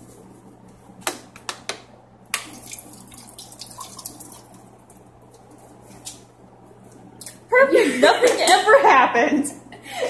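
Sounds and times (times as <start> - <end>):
small splashes and ticks: 2.4 - 5.3
faucet running into steel sink: 2.5 - 4.7.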